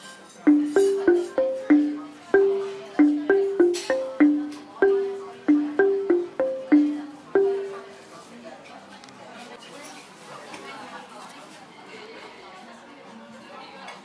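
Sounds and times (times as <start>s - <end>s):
mallet percussion melody: 0.5s - 8.1s.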